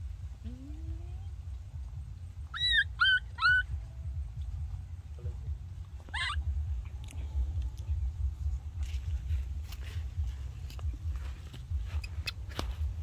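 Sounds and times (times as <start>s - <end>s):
steady low rumble: 0.0s - 13.0s
baby monkey crying: 2.4s - 3.8s, 6.0s - 6.5s.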